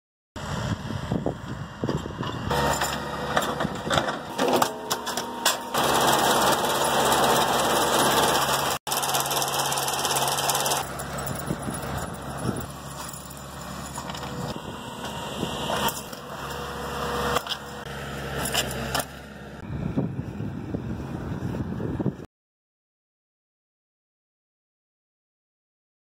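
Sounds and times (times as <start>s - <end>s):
wind on microphone: 0.4s - 2.5s, 19.6s - 22.3s
harvester engine hum: 0.4s - 22.2s
machinery clanks and rattles: 1.3s - 19.6s.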